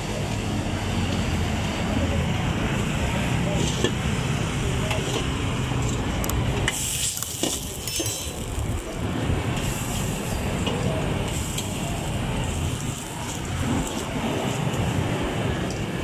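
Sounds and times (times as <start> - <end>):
gas wok burner rumble: 0.0 - 16.0
street noise: 0.0 - 16.0
oil sizzling in a wok: 6.7 - 14.8.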